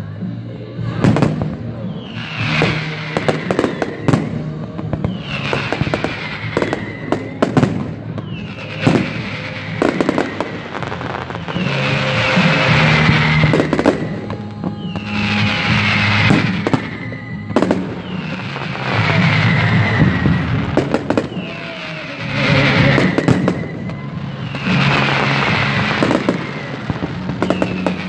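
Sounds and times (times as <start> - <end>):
music playing: 0.0 - 28.0
fireworks bangs: 0.8 - 28.0.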